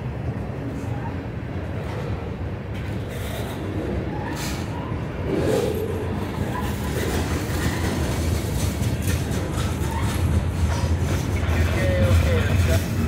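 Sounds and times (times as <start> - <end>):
train wheels rumbling on rails: 0.0 - 13.0
wheels clicking: 5.3 - 13.0.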